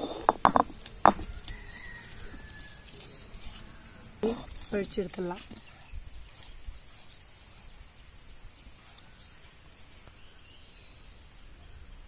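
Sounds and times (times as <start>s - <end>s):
small birds chirping: 0.0s - 11.9s.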